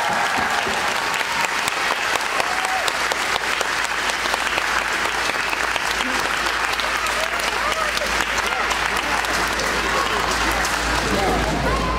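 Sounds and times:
audience applauding: 0:00.0 - 0:11.9
faint voices: 0:05.1 - 0:11.9.

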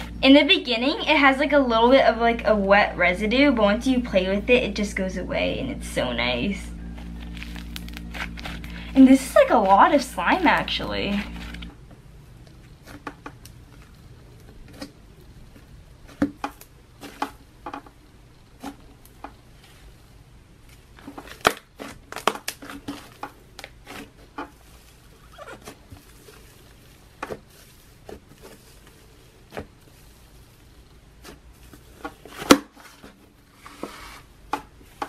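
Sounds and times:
slime popping and crackling: 0:06.9 - 0:11.7, 0:20.8 - 0:32.7.

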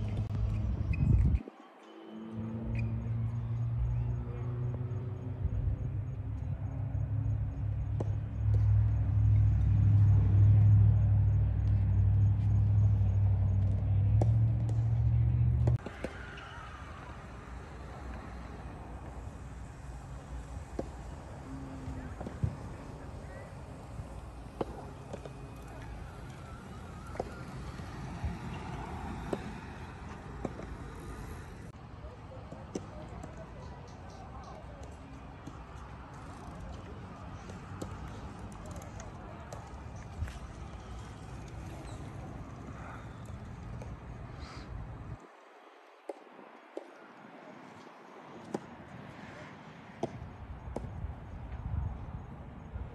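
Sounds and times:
wind rumbling on microphone: 0:00.0 - 0:01.5, 0:08.6 - 0:31.8, 0:50.2 - 0:52.9.

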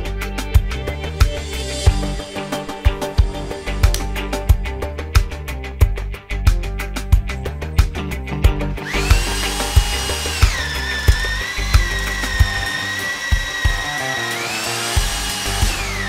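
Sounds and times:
background music with beat: 0:00.0 - 0:16.0
rotary hammer motor whining: 0:08.8 - 0:16.0.

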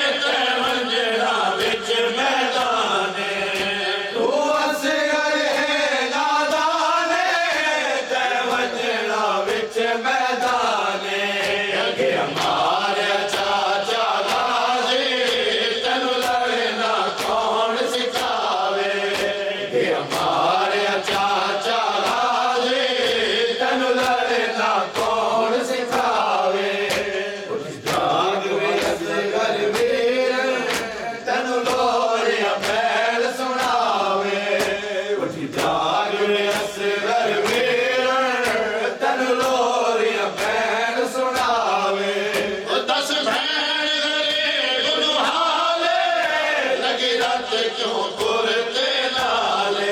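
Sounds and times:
men chanting a lament: 0:00.0 - 0:49.9
chest beating slaps: 0:24.0 - 0:30.0, 0:30.6 - 0:32.0.

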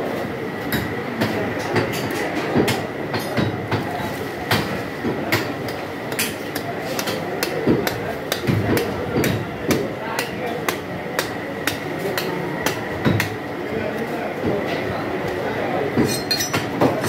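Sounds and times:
market background noise: 0:00.0 - 0:17.0
cleavers chopping meat and bone: 0:00.7 - 0:17.0.

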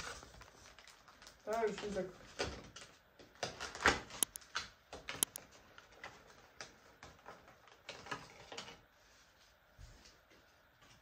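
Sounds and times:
plastic packaging crinkling: 0:00.0 - 0:08.8.

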